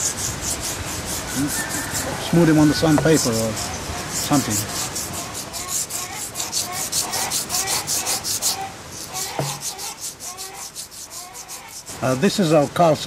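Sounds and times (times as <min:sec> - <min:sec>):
spinning top grinding on stone: 0:00.0 - 0:11.9
knock: 0:09.4 - 0:09.6.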